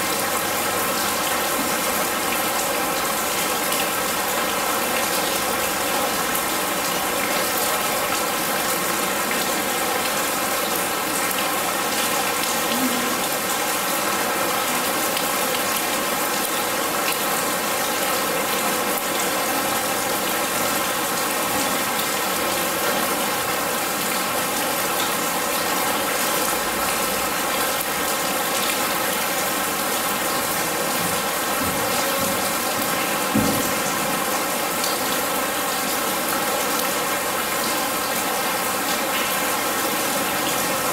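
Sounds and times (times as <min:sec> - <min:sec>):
rain on metal and water: 0:00.0 - 0:40.9
dull knock: 0:31.6 - 0:33.9.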